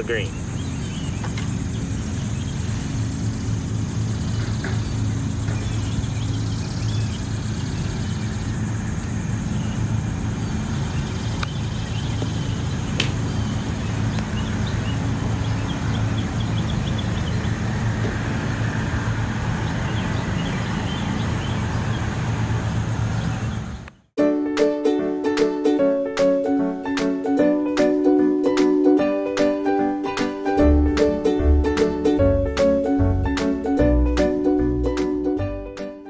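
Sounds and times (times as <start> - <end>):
steady low hum: 0.0 - 24.0
golf club striking ball: 12.9 - 13.4.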